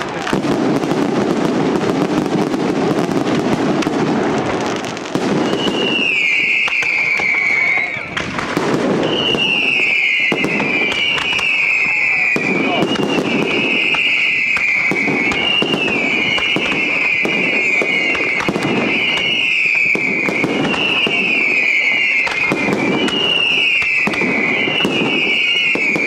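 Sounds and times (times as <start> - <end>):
fireworks bangs and crackles: 0.0 - 26.0
high shrill descending whistle: 5.4 - 8.2, 9.0 - 26.0.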